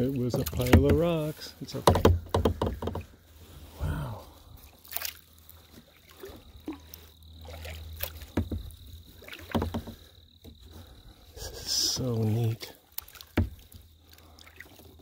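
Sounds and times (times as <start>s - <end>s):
paddle splashing water: 0.0s - 15.0s
knocks and clicks: 0.4s - 1.2s, 1.8s - 3.1s.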